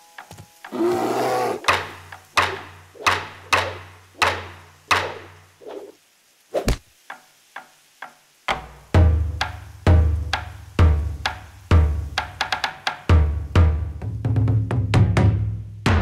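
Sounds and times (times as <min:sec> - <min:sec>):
hollow woody knocks: 0:01.6 - 0:05.4.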